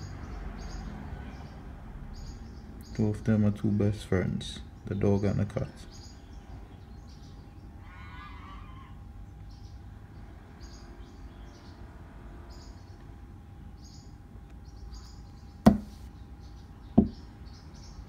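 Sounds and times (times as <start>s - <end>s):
faint steady hum: 1.6s - 18.0s
sharp knock: 15.7s - 16.1s, 17.0s - 17.2s.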